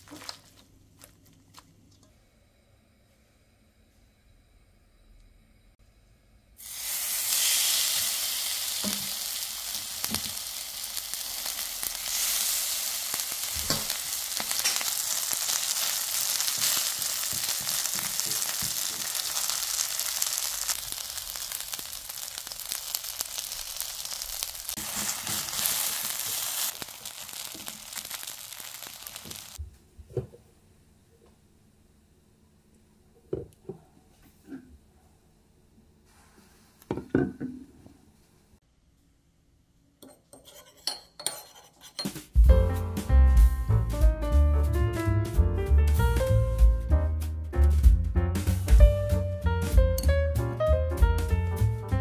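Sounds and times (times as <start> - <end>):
batter sizzling in hot oil: 6.6 - 29.6.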